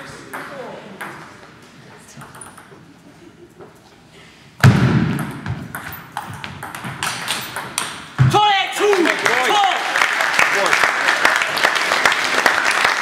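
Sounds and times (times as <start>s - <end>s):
loud low thump: 4.6s - 5.7s.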